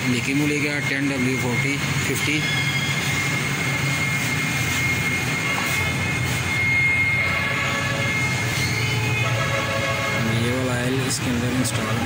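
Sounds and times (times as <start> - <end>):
mechanical drone with high whine: 0.0 - 12.0.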